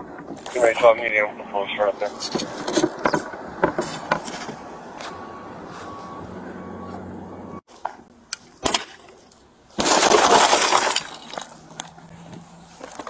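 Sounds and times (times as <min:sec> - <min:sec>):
glass shattering: 0:09.8 - 0:11.6.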